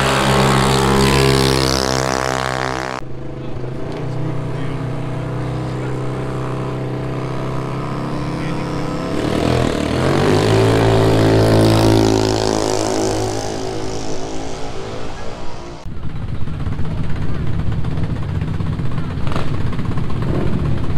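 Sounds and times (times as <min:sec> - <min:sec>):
motorcycle engine running: 0:00.0 - 0:20.9.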